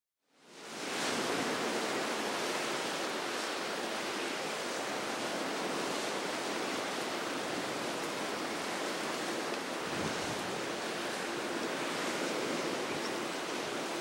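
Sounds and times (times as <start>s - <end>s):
wind: 0.2s - 14.0s
waves on choppy sea: 0.3s - 14.0s.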